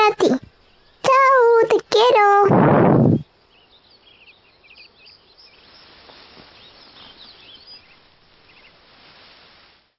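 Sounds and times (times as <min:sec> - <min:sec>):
small birds chirping: 0:00.0 - 0:08.8
steady background hiss: 0:03.1 - 0:09.9.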